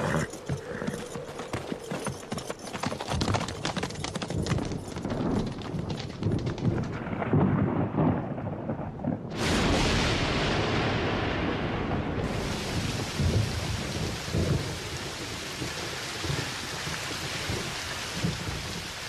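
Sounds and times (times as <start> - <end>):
hoofbeats on dirt: 0.0 - 7.2.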